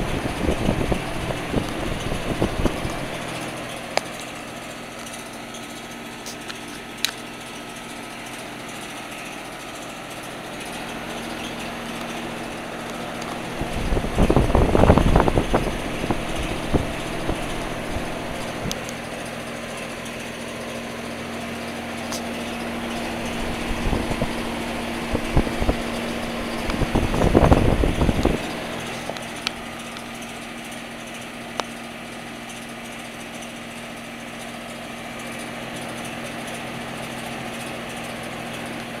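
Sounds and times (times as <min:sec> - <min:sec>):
wind buffeting microphone: 0:00.0 - 0:03.4, 0:13.3 - 0:18.8, 0:22.8 - 0:28.9
fan whirring: 0:00.0 - 0:39.0
heat pump humming: 0:00.0 - 0:39.0.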